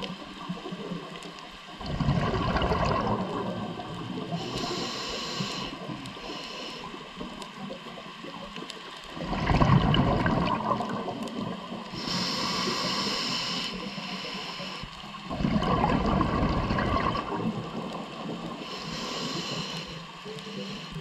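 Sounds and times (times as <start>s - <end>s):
bubbling exhaust underwater: 0.0s - 21.0s
diver breathing through regulator: 4.3s - 7.1s, 11.9s - 15.1s, 18.6s - 21.0s.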